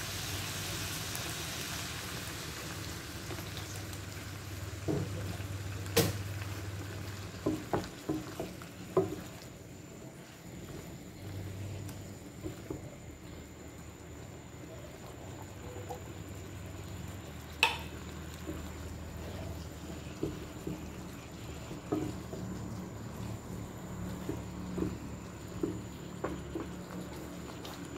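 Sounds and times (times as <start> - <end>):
food sizzling in a wok: 0.0 - 27.9
spatula knocking wok: 7.2 - 9.4, 12.3 - 13.0, 17.4 - 27.8.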